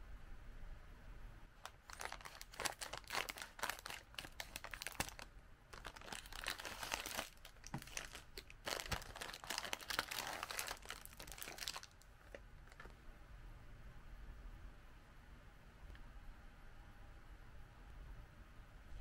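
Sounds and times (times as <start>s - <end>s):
plastic film crinkling: 1.6s - 12.9s
scissors cutting plastic bag: 1.7s - 5.2s, 5.8s - 11.9s.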